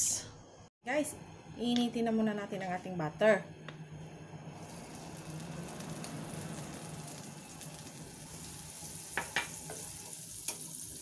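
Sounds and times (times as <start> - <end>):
butter sizzling in a pan: 4.6 - 11.0
wooden spatula knocking on pan: 9.2 - 9.8.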